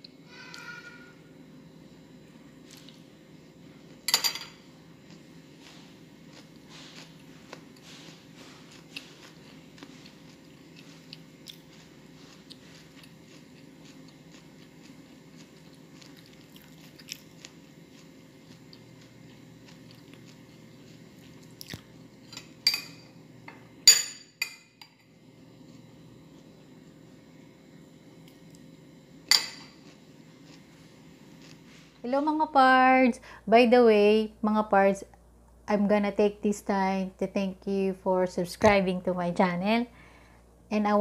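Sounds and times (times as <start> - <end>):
chewing and mouth clicks: 6.3 - 21.9.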